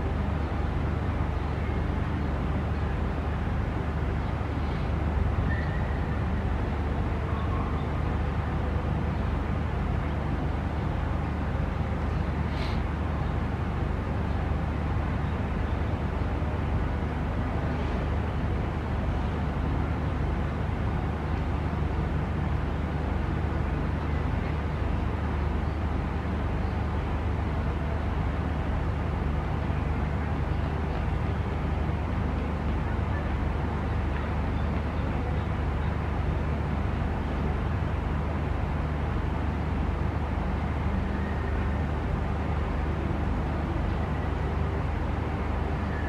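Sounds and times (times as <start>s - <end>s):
low outdoor rumble: 0.0s - 46.0s
faint hiss: 12.4s - 13.1s.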